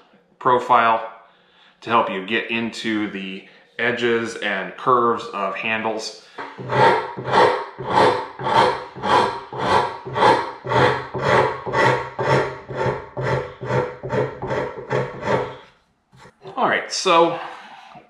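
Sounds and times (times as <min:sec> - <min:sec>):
hand rasp scraping wood: 0:06.4 - 0:16.5.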